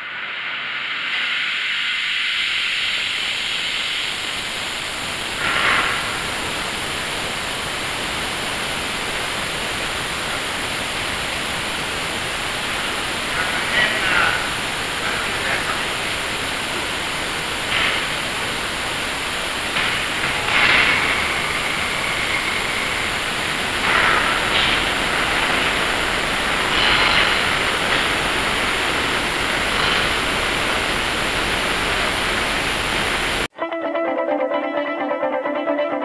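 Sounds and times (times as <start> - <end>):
torch flame hissing: 0.0 - 33.5
guitar music: 33.5 - 36.0.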